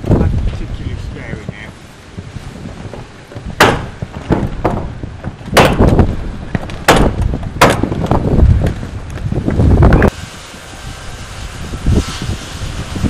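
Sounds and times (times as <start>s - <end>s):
wind rumble on microphone: 0.0s - 13.0s
nail gun shots: 3.6s - 4.8s, 5.6s - 6.0s, 6.9s - 7.9s.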